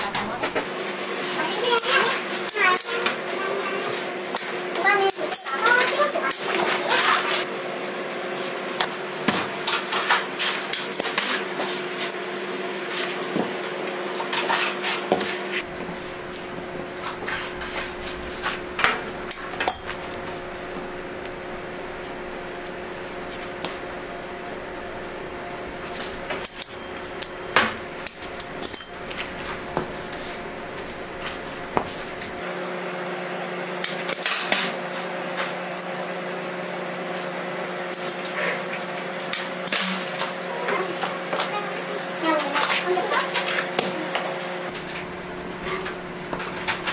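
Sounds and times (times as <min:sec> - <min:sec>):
steady hum: 0:15.5 - 0:32.6, 0:44.7 - 0:46.9.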